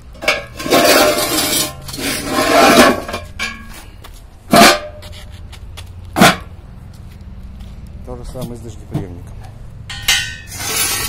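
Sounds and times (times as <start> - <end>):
metal grinding on concrete: 0.0 - 3.8, 9.9 - 11.0
loud metallic clank: 9.9 - 11.0.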